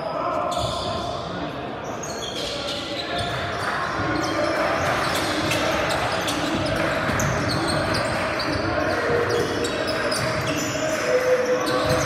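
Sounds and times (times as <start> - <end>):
echoing voices: 0.0 - 12.0
sneaker squeaks: 0.0 - 12.0
basketball bouncing on court: 3.2 - 10.7, 11.6 - 12.0.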